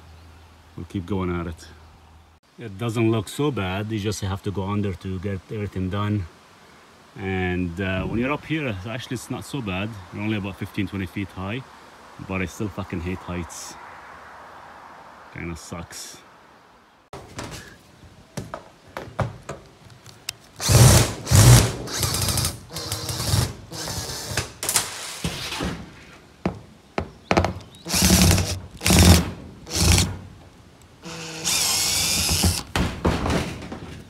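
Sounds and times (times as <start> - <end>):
power drill running: 20.6 - 24.4, 27.9 - 30.1, 31.0 - 32.7.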